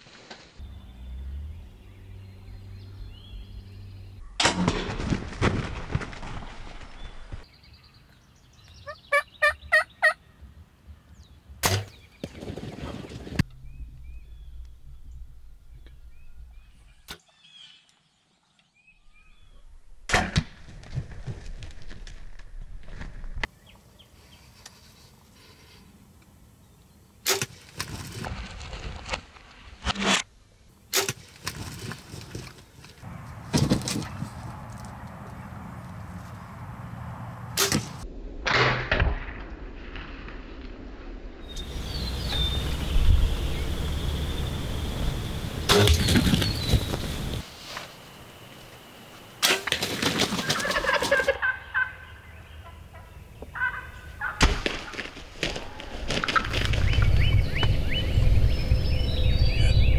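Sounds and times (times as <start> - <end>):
scuffling in dry stubble: 0.0 - 0.8, 27.8 - 29.8, 31.2 - 36.8
turkeys gobbling: 8.9 - 10.2, 50.1 - 57.0.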